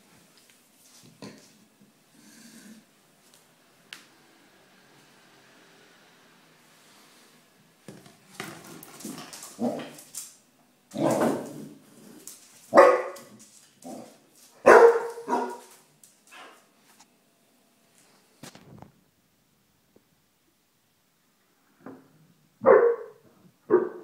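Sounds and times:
dog barking: 0:12.7 - 0:13.3, 0:14.6 - 0:15.7, 0:22.6 - 0:24.0.

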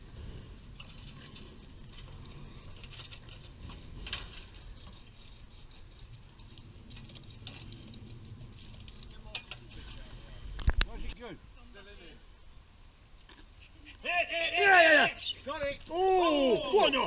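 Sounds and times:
wind rumble on microphone: 0:00.0 - 0:11.2.

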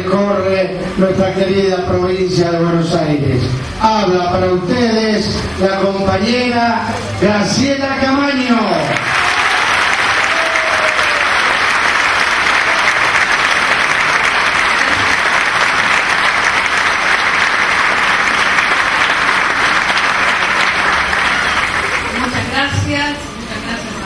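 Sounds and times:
large crowd applauding: 0:08.8 - 0:22.7.

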